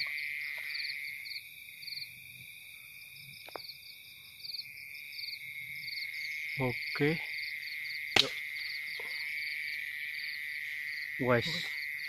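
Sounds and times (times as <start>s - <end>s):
high insect drone: 0.0s - 12.0s
pulsed frog calls: 5.8s - 12.0s.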